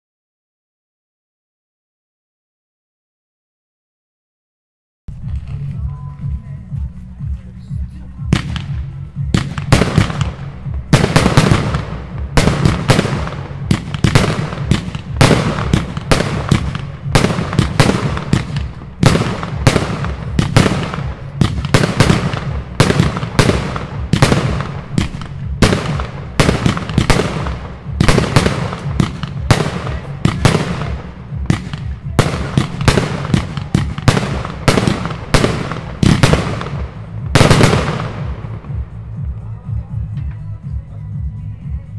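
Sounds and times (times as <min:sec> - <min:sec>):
firework battery firing shots: 0:08.2 - 0:39.0.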